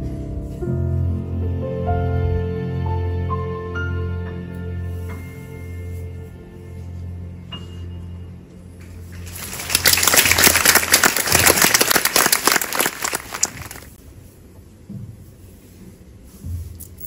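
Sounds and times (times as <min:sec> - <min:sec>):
audience applauding: 0:09.2 - 0:14.0.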